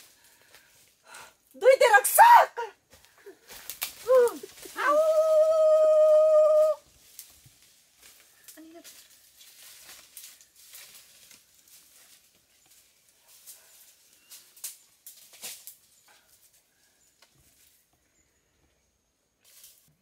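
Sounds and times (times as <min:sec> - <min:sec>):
rustling leaves and twigs: 0:00.0 - 0:20.0
branches cracking: 0:02.2 - 0:17.8.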